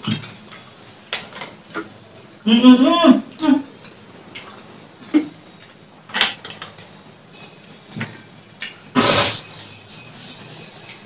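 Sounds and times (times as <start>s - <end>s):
loud burst of noise: 8.9s - 9.7s.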